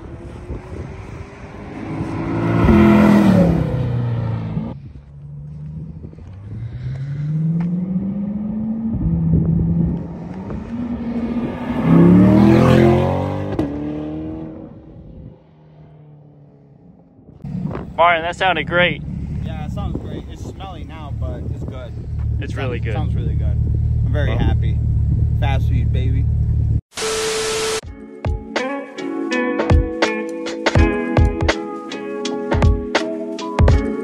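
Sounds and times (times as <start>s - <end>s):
car engine accelerating past: 0.0s - 17.8s.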